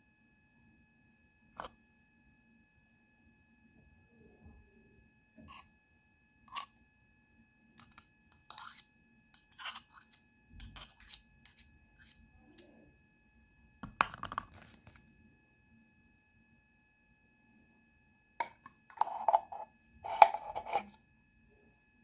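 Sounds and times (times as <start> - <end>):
knife scraping glass jar: 5.4 - 5.7, 6.5 - 6.7, 7.8 - 12.6, 18.4 - 21.0.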